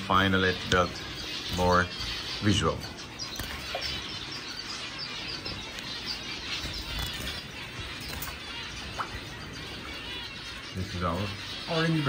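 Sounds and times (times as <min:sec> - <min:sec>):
finches chirping: 0:00.0 - 0:12.0.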